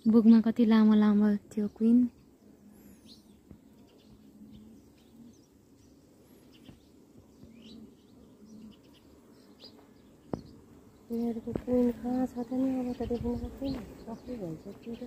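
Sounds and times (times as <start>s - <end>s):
bees humming: 0.0s - 15.0s
small birds chirping: 0.0s - 15.0s.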